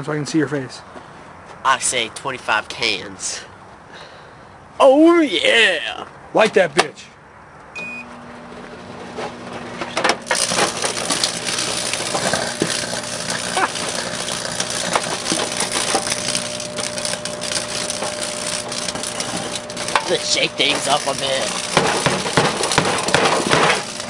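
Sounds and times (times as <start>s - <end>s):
microwave oven beep: 7.8s - 8.6s, 15.5s - 21.1s
microwave oven humming: 7.8s - 24.0s
electrical arcing crackle: 8.2s - 24.0s.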